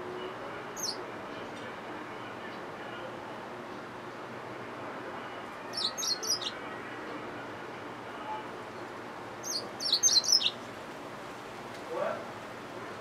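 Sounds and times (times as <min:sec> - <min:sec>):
finch chirping song: 0:00.8 - 0:01.0, 0:05.7 - 0:06.6, 0:09.4 - 0:10.6.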